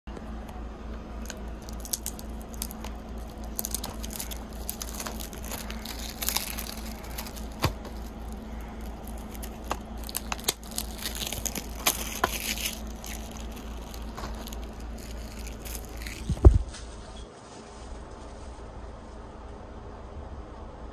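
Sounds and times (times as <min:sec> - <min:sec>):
steady low hum: 0:00.1 - 0:20.9
plastic shrink wrap crackling: 0:01.2 - 0:17.0.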